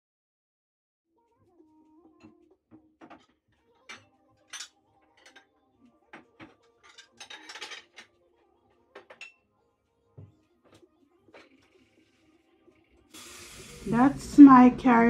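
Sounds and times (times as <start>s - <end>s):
glass dishes and cutlery clinking: 2.2s - 9.5s, 10.2s - 11.8s.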